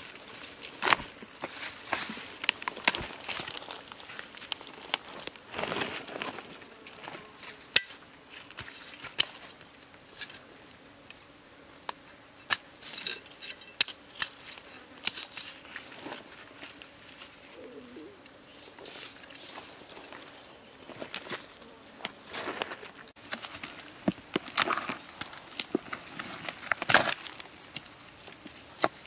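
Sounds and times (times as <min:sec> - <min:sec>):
dry leaves rustling: 0:00.0 - 0:10.6, 0:12.8 - 0:18.1, 0:22.2 - 0:29.0
knife clinking on wood and stones: 0:08.6 - 0:10.5, 0:11.8 - 0:15.6.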